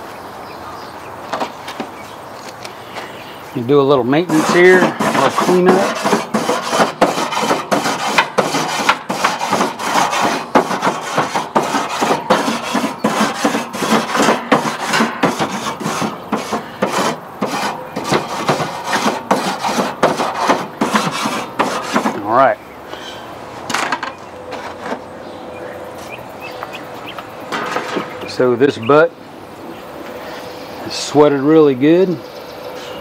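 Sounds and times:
grill brush scraping grates: 2.9 - 25.1, 27.5 - 28.8.

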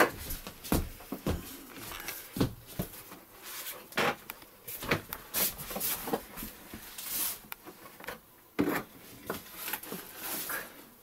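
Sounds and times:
plastic scraping and rustling: 2.8 - 10.8.

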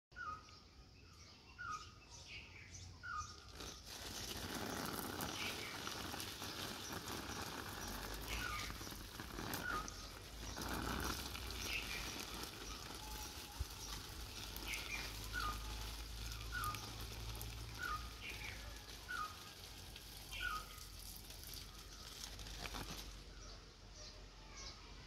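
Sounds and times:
bird chirps: 0.1 - 25.0
urine splashing on leaves: 3.2 - 23.5.

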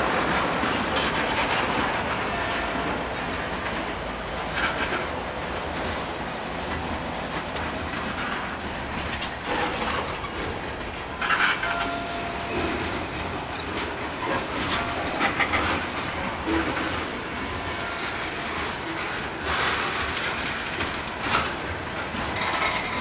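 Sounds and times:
train wheel squeal: 0.0 - 3.5, 9.3 - 23.0
train wheels clacking over rail joints: 0.0 - 23.0.

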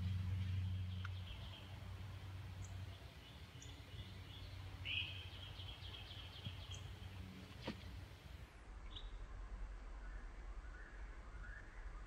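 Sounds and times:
birds chirping: 0.0 - 9.2.

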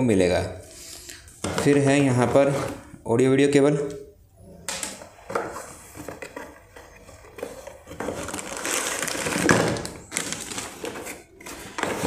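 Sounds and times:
plastic bag crinkling: 7.4 - 12.0.

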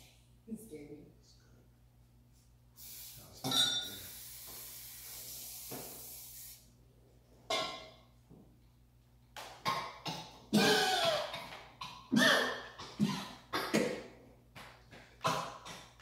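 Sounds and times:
aerosol can spraying: 2.8 - 3.3, 4.0 - 6.6.

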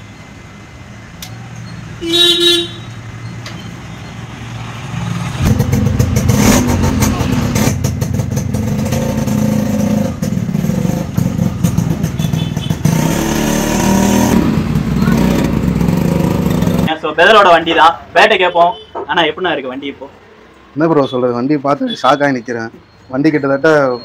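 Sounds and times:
motorcycle engine revving: 4.6 - 16.9.

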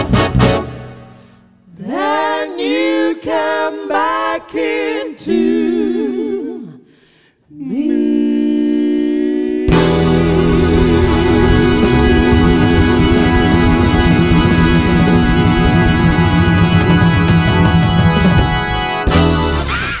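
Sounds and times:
women singing a cappella: 1.7 - 6.9, 7.5 - 13.7
band playing last chord: 9.7 - 19.7.

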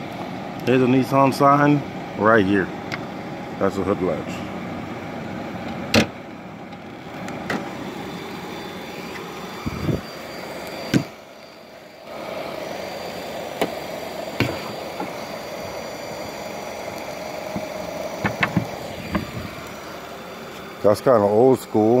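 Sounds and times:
steady background hum: 0.0 - 22.0
car hood latch clicks and knocks: 5.7 - 6.8, 17.6 - 19.4.

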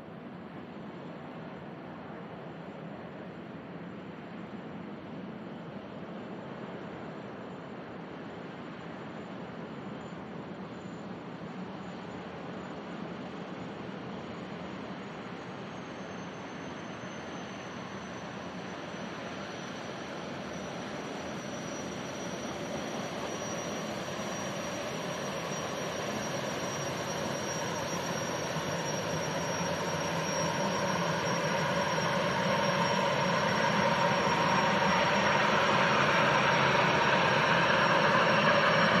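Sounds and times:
thin high whine: 6.7 - 39.0
ferry turbines rushing noise: 16.3 - 39.0.

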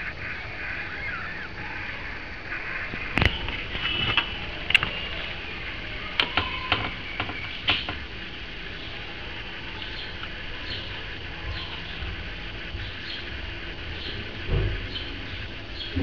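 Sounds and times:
kittens squeaking: 0.0 - 8.0
sharp irregular clicks: 6.1 - 8.1.

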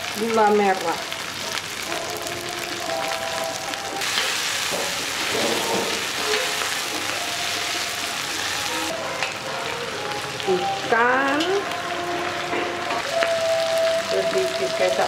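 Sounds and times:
food sizzling in hot oil: 0.0 - 15.0
metal spatula stirring in wok: 4.0 - 8.2.

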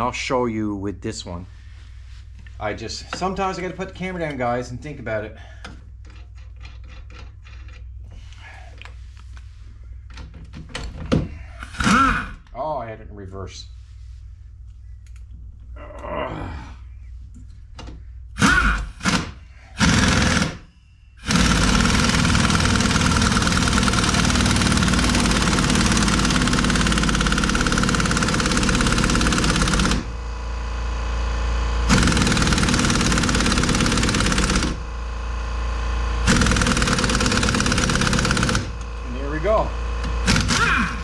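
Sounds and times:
impact wrench hammering: 18.4 - 30.1, 31.9 - 34.8, 36.2 - 38.9, 40.0 - 41.0.

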